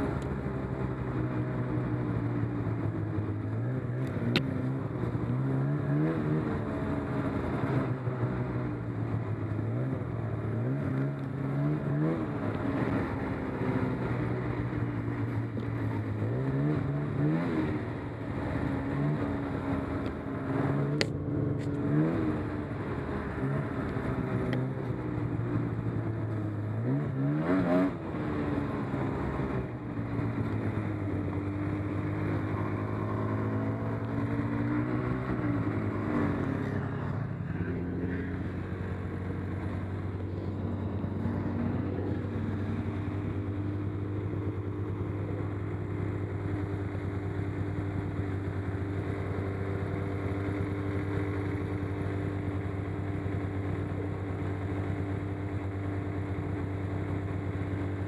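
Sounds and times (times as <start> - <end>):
snowmobile engine revving: 9.6 - 52.6.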